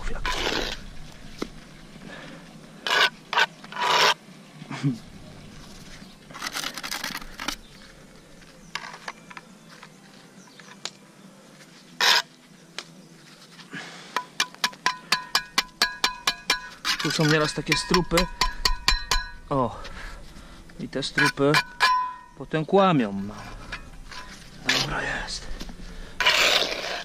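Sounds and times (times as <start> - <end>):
trowel scraping concrete blocks: 0.0 - 0.9, 2.8 - 4.2, 12.0 - 12.4, 14.2 - 18.6, 21.0 - 22.4, 26.1 - 27.0.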